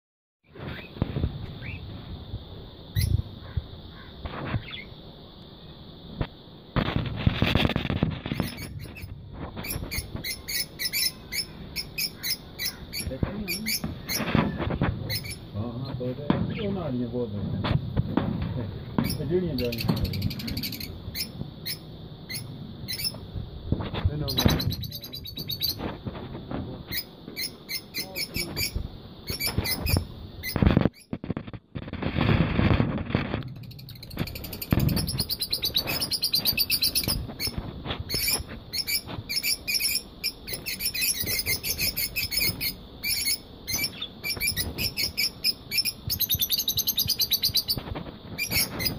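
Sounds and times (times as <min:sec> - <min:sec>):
lovebirds chirping: 0:00.5 - 0:02.0, 0:02.6 - 0:06.0, 0:07.6 - 0:17.3, 0:18.5 - 0:23.4, 0:24.0 - 0:26.0, 0:26.8 - 0:31.2, 0:33.3 - 0:48.9
loud rustle: 0:06.1 - 0:11.1, 0:13.0 - 0:21.6, 0:22.9 - 0:27.5, 0:28.2 - 0:45.3, 0:47.0 - 0:48.9.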